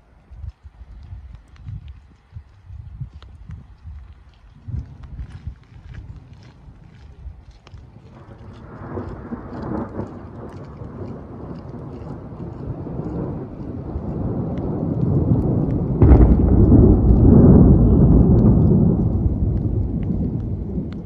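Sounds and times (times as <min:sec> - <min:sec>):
low thunder rumble: 0:01.0 - 0:21.0
thunder clap: 0:08.2 - 0:21.0.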